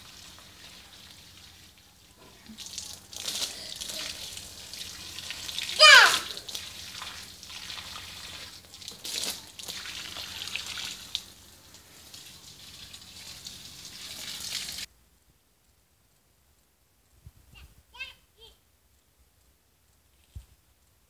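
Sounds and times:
hose water splashing on concrete: 0.0s - 14.9s.

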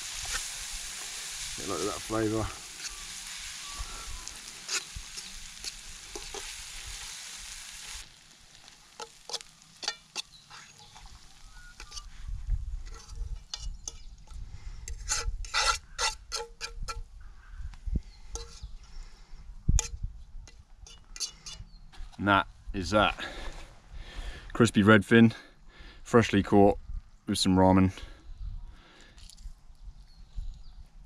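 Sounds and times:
food sizzling in a frying pan: 0.0s - 12.2s
utensil scraping pan: 4.6s - 6.7s, 12.8s - 14.1s, 14.9s - 17.0s, 18.3s - 18.7s, 20.8s - 21.7s.

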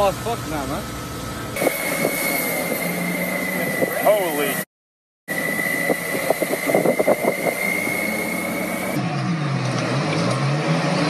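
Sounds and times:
car engine revving: 0.0s - 4.7s, 5.3s - 11.0s
road and engine noise: 0.0s - 4.7s, 5.3s - 11.0s
high-pitched whine: 1.6s - 4.7s, 5.3s - 9.0s.

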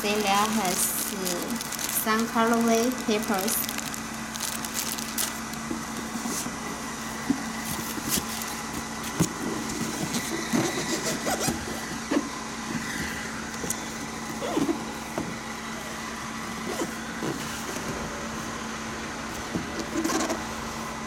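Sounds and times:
tissue paper rustling: 0.0s - 6.6s, 7.6s - 9.2s
steady background hum: 0.0s - 21.0s.

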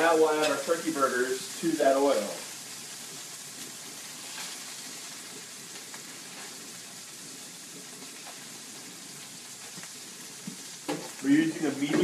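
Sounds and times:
oil sizzling in frying pan: 0.0s - 12.0s.

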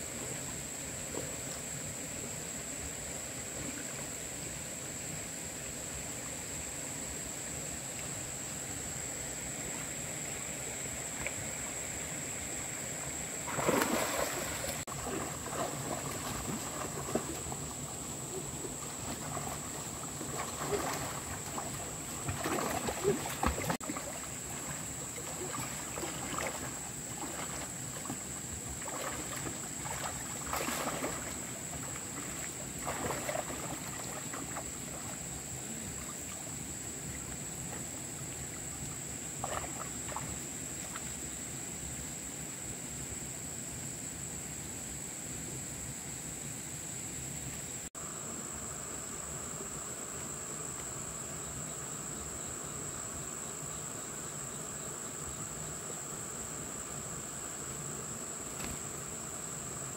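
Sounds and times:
hands splashing in stream water: 13.4s - 35.2s, 39.4s - 41.0s.

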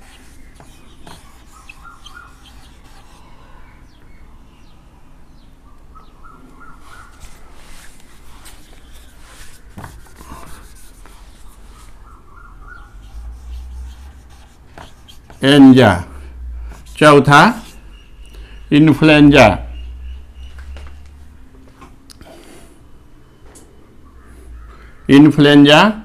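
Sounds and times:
marker squeaking on a whiteboard: 0.0s - 3.3s, 8.3s - 15.8s, 16.7s - 18.3s.

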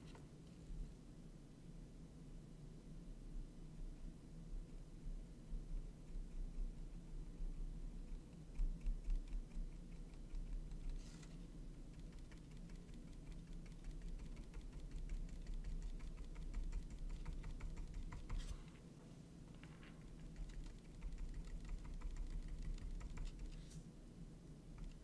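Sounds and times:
brush strokes: 8.1s - 23.9s.

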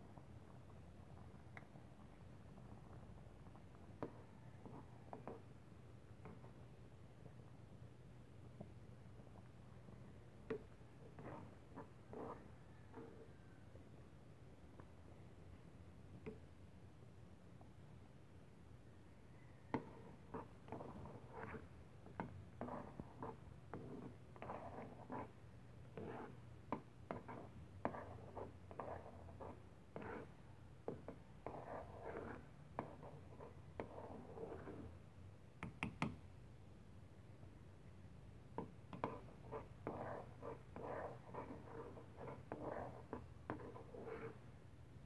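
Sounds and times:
spoon stirring porridge in pot: 0.2s - 7.4s, 8.5s - 14.0s, 19.6s - 35.0s, 38.5s - 44.5s.

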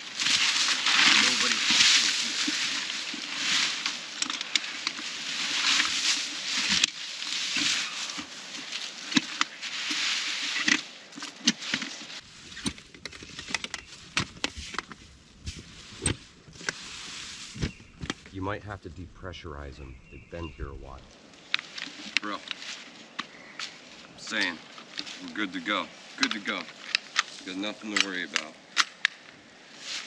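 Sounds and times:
rustling noise: 0.0s - 18.4s, 20.6s - 30.0s
sharp clicks and crackles: 0.2s - 6.0s, 26.2s - 29.4s.

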